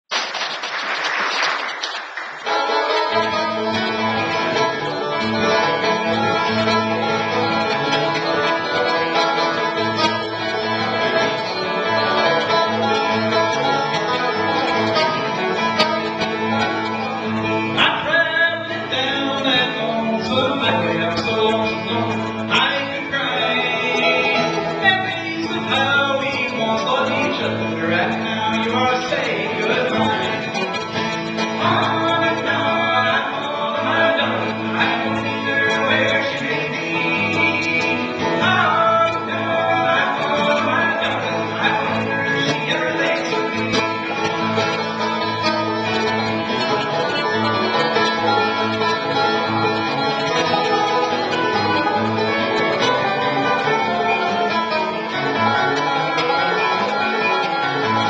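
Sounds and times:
applause: 0:00.1 - 0:02.7
acoustic guitar and banjo playing: 0:02.4 - 0:58.0
man singing: 0:03.0 - 0:58.0.

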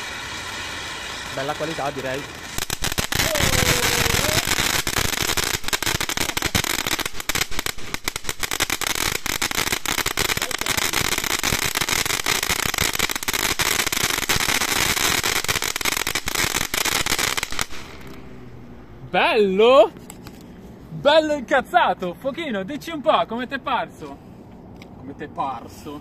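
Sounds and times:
firework fountain hissing and crackling: 0:00.0 - 0:20.4.

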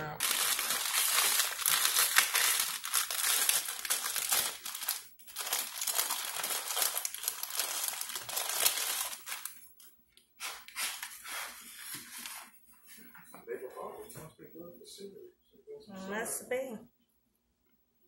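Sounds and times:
crinkling and rustling from handling: 0:00.2 - 0:13.5.

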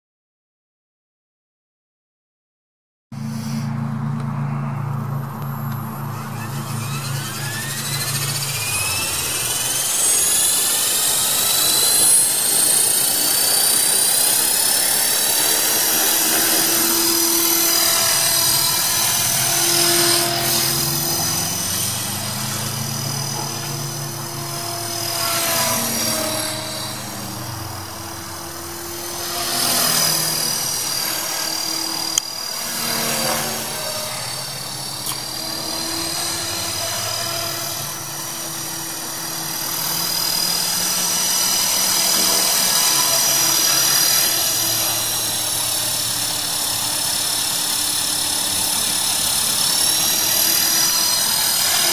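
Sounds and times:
rc helicopter motor whine: 0:03.2 - 0:51.9
rotor blade noise: 0:03.2 - 0:51.9
sharp click: 0:35.0 - 0:35.2.

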